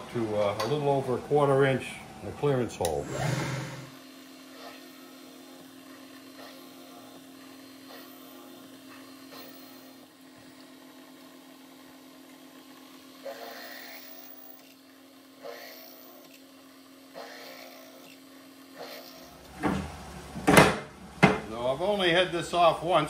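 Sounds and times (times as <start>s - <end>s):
drill press humming: 2.8s - 4.0s
drill cutting metal: 3.0s - 4.0s, 13.2s - 14.7s.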